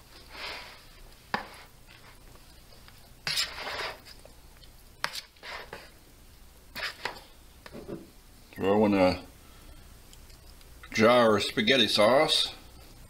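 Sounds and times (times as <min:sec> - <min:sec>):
spoon stirring food in bowl: 0:00.1 - 0:06.0, 0:06.7 - 0:08.0.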